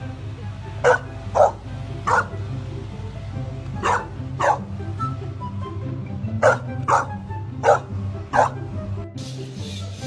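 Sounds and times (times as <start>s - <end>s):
background music: 0.0s - 10.0s
puppy barking: 0.8s - 2.4s, 3.8s - 4.7s, 6.4s - 8.6s.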